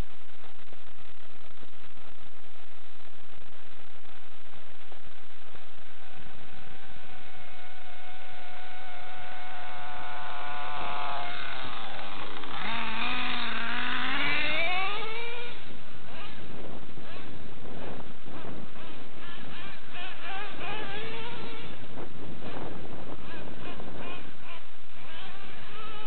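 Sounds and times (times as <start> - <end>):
nitro rc truck engine running: 5.9 - 26.0.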